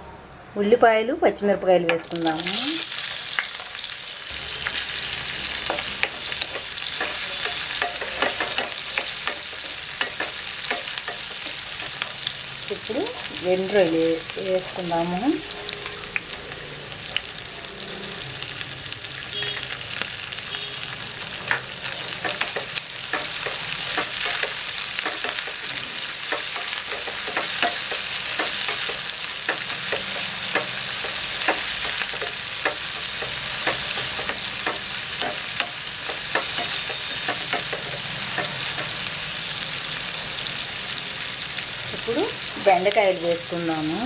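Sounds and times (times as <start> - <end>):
food sizzling in oil: 1.9 - 44.0
spatula scraping and tapping pan: 5.6 - 12.2, 21.4 - 39.1.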